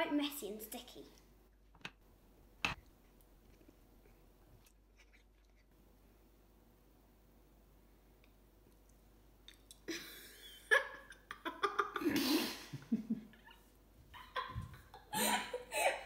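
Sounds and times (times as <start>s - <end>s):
girl giggling: 9.9s - 16.0s.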